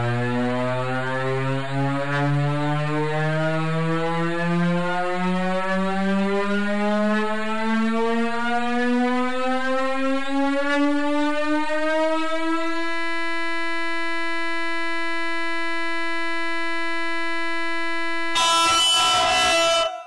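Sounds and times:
harsh noisy burst: 18.4 - 20.0.

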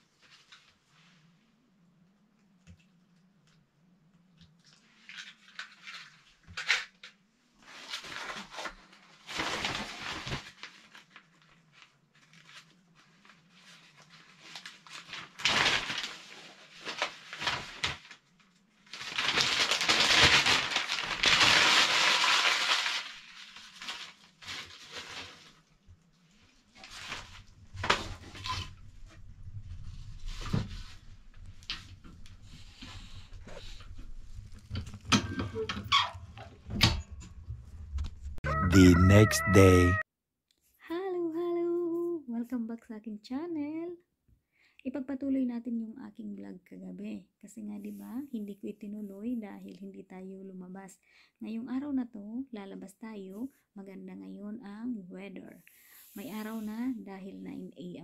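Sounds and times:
newspaper crumpling and tearing: 7.6 - 25.6.

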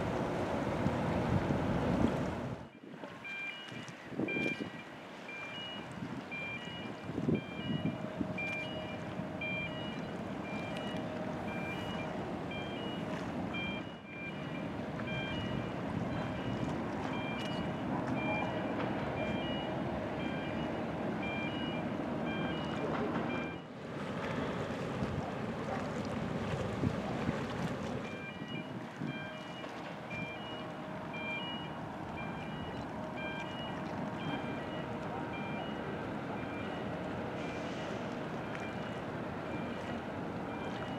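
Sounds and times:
vehicle reversing alarm beeping: 2.6 - 23.7, 28.1 - 40.9
electronic alarm beeping: 13.6 - 23.6, 31.2 - 35.8.

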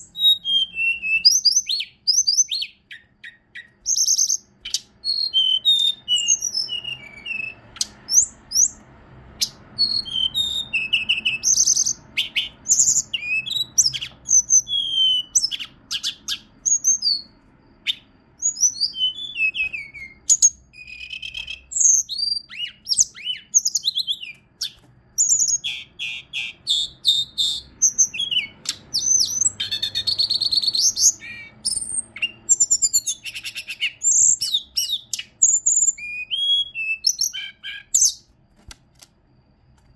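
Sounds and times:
bird singing whistled notes: 0.0 - 38.4.

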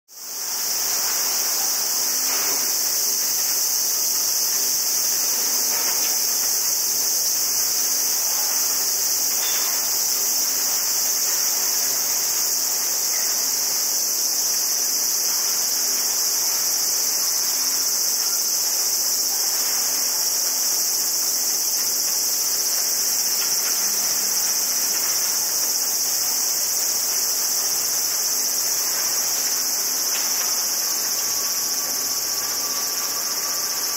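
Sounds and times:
cicadas buzzing: 0.1 - 33.9.

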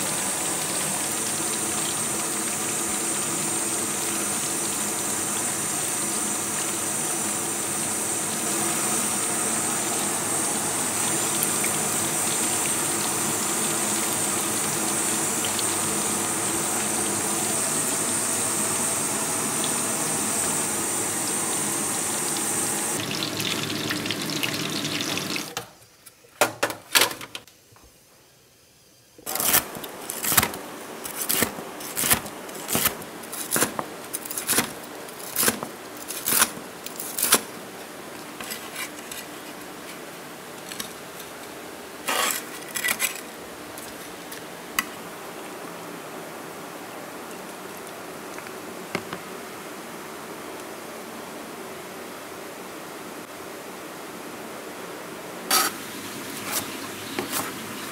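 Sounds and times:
frying oil hissing: 0.0 - 26.0, 55.5 - 57.9.

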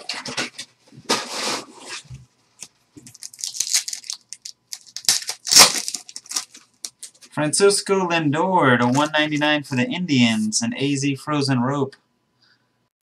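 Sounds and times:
foil wrapper crinkling and tearing: 3.0 - 7.3, 8.8 - 9.2.

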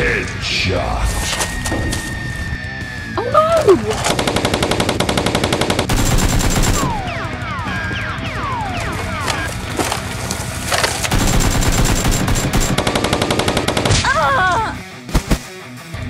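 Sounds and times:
rapid automatic gunfire: 4.0 - 9.5, 11.1 - 14.1, 15.1 - 15.5.

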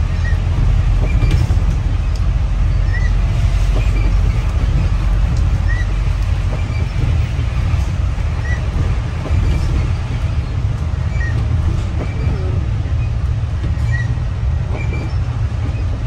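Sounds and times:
low rumble of vehicle: 0.0 - 16.0.

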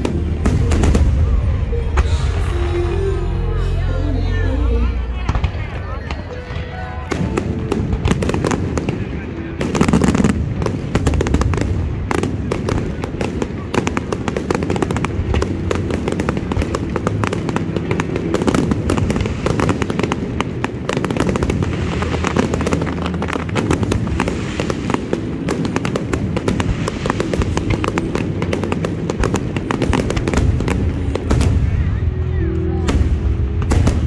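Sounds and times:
fireworks popping and crackling: 0.0 - 2.2, 5.2 - 34.0
music: 0.0 - 34.0.

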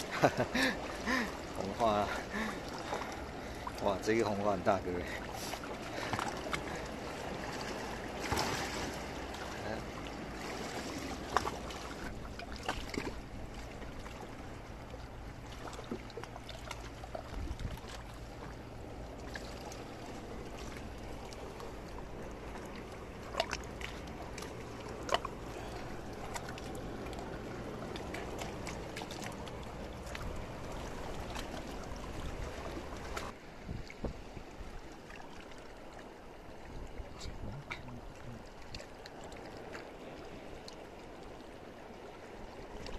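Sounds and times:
water lapping over rocks: 0.0 - 42.9.

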